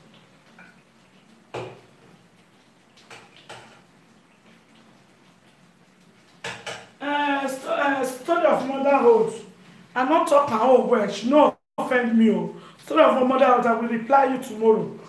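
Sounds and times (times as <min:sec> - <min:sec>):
cookware and utensils clinking: 0:06.4 - 0:07.0.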